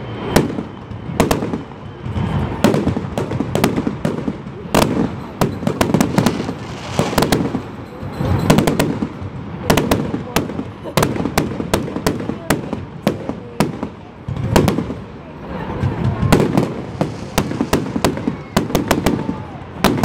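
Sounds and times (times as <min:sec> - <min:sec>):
fireworks bursting with sharp bangs: 0:00.0 - 0:20.0.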